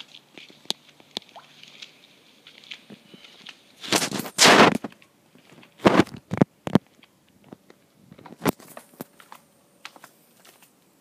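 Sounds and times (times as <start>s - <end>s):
phone rubbing rustle: 3.8s - 6.8s.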